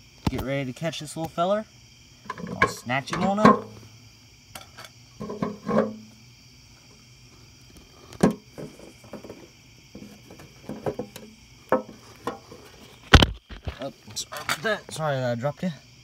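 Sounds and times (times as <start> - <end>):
night insects chorus: 0.0 - 16.0
container and lid knocking: 2.3 - 3.8, 5.2 - 6.0, 10.0 - 12.5.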